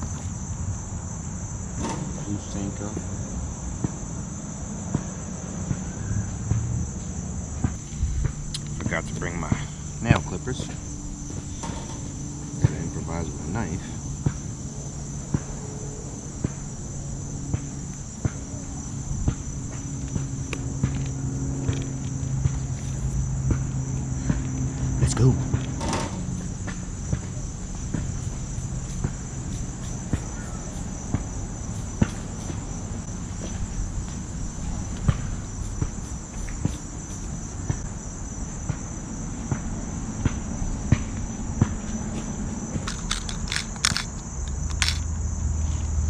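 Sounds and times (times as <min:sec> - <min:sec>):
insects chirring: 0:00.0 - 0:46.0
fishing tackle clicking: 0:42.8 - 0:45.0.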